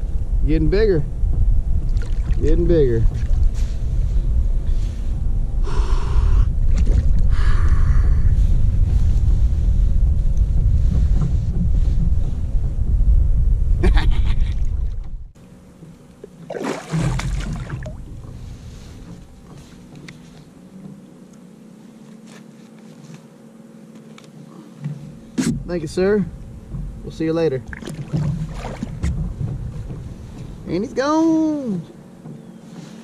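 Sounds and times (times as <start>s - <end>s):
wind buffeting microphone: 0.0s - 15.4s, 17.0s - 20.0s, 25.2s - 32.5s
microphone handling noise: 1.2s - 15.4s.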